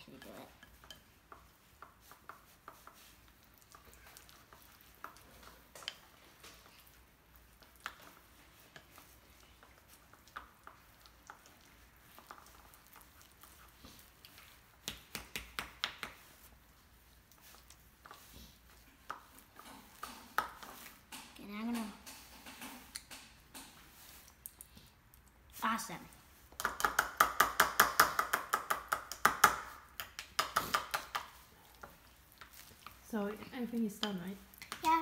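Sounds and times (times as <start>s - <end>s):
utensil tapping bowl: 0.1s - 11.5s, 26.5s - 35.0s.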